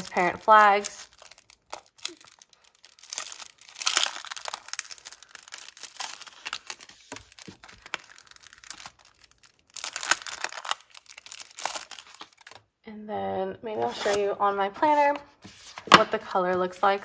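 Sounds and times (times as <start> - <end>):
plastic packaging crinkling: 0.0 - 12.7.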